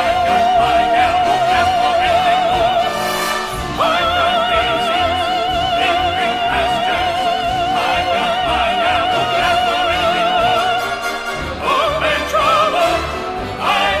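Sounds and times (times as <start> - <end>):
orchestra playing: 0.0 - 14.0.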